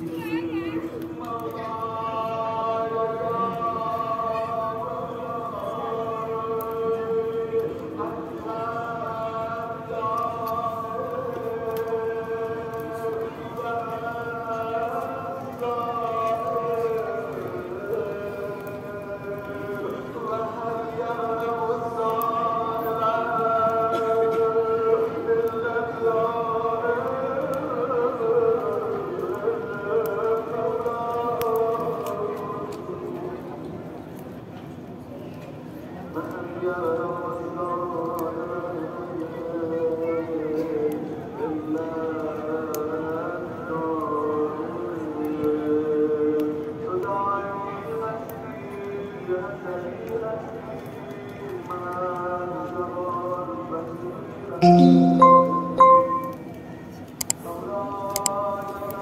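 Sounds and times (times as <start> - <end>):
slow chanted singing: 1.0 - 32.8, 54.6 - 56.6
person chanting held note: 54.6 - 56.6.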